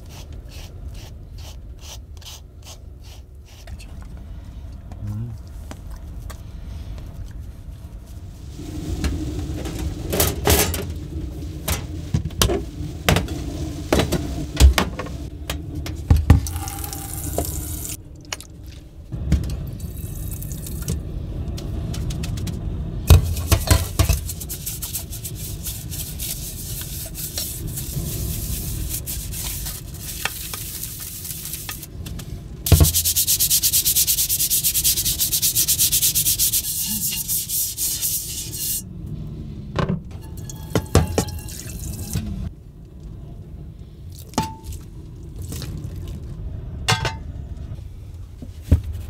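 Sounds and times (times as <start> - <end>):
dish brush scrubbing: 23.3 - 31.9, 32.7 - 38.8
dishes clinking against sink: 40.2 - 42.2.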